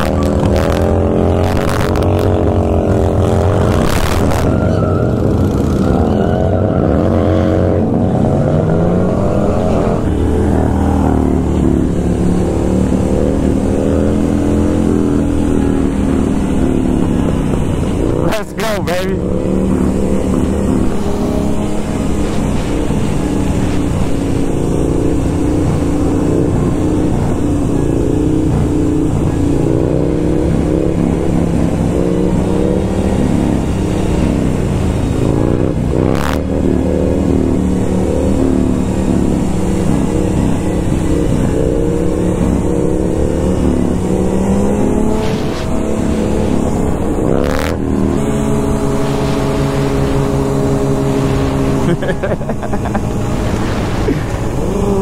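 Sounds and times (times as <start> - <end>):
motorcycle engine: 0.0 - 55.0
wind rush: 53.0 - 55.0.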